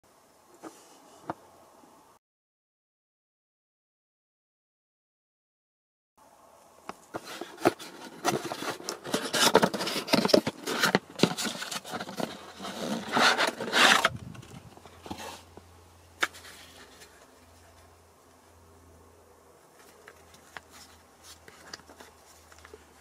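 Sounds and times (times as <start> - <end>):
cardboard box rustling and scraping: 7.1 - 15.6, 16.2 - 17.8.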